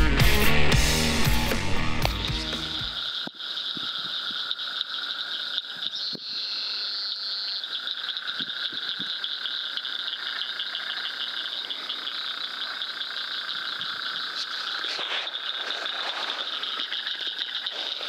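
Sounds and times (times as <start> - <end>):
frogs and insects chorus: 2.8 - 18.0.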